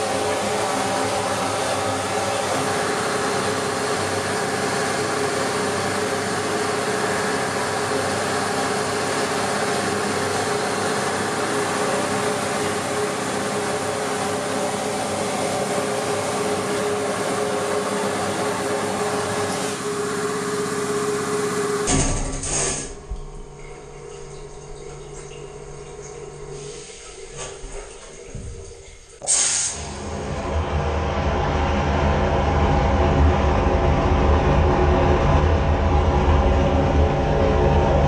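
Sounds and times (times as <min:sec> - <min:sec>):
machine hum: 0:00.0 - 0:38.0
water jet blasting hiss: 0:29.2 - 0:30.0.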